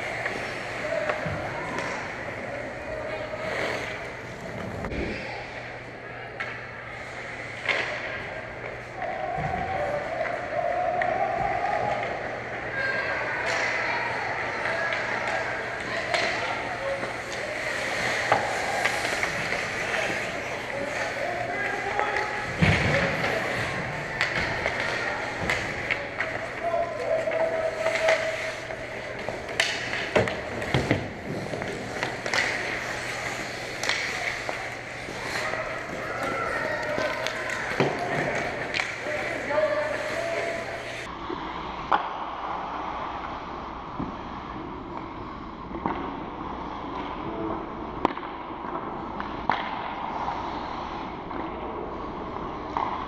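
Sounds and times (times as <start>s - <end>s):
hockey sticks and puck clacks: 0.0s - 5.2s, 6.3s - 41.1s, 41.7s - 44.3s, 44.9s - 53.0s
skates scraping on ice: 0.0s - 5.6s, 6.9s - 41.1s
arena background noise: 0.0s - 53.0s.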